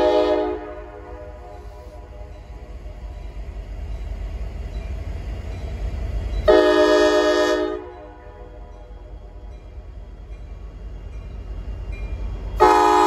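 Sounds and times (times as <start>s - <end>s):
locomotive horn blast: 0.0s - 2.0s, 6.5s - 8.6s, 12.6s - 13.0s
train rumble: 0.0s - 13.0s.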